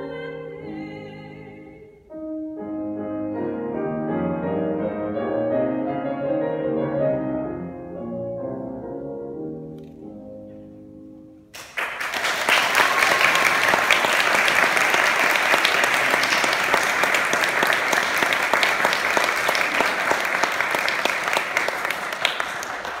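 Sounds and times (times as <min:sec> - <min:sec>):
audience applause: 0:11.6 - 0:23.0.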